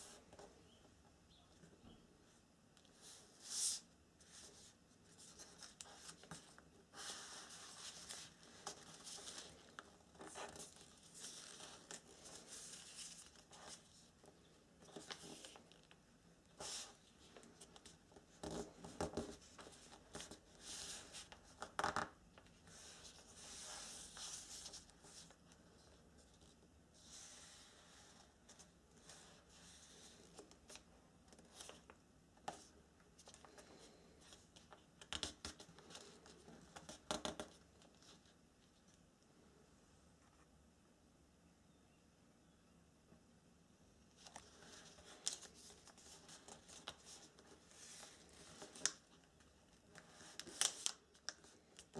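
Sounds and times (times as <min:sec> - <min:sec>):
paper crackles: 0:44.2 - 0:51.9.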